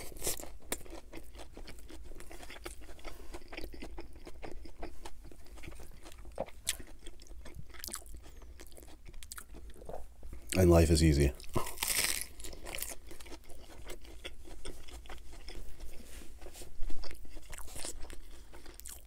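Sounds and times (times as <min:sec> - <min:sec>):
wet chewing with lettuce crunches: 0:00.0 - 0:19.0.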